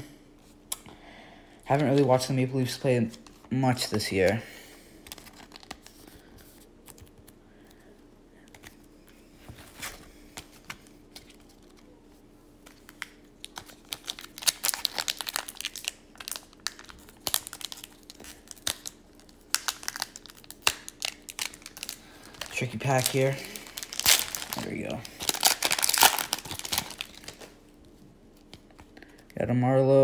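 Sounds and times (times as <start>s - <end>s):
foil wrapper crinkling and tearing: 5.0s - 5.9s, 12.7s - 27.6s.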